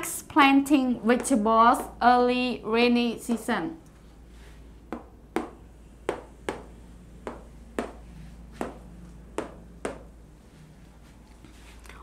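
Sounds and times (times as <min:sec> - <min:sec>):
marker tapping on whiteboard: 0:04.9 - 0:10.1.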